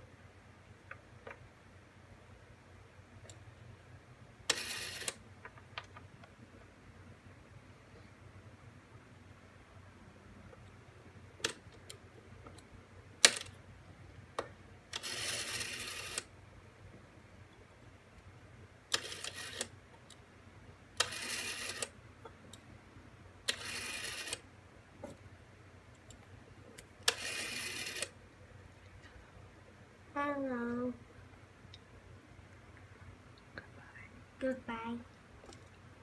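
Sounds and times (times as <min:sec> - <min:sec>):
rotary telephone dial whirring: 0:04.5 - 0:05.2, 0:13.2 - 0:13.5, 0:14.9 - 0:16.3, 0:18.9 - 0:19.8, 0:21.0 - 0:22.0, 0:23.5 - 0:24.4, 0:27.0 - 0:28.2.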